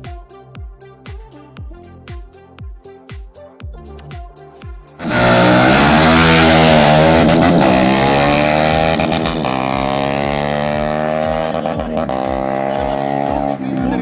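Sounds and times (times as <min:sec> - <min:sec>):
motorcycle engines revving: 0:05.0 - 0:14.0.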